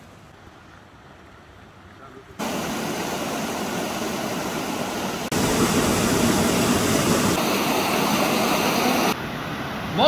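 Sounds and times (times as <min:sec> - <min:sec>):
waterfall rushing: 0:02.4 - 0:10.0.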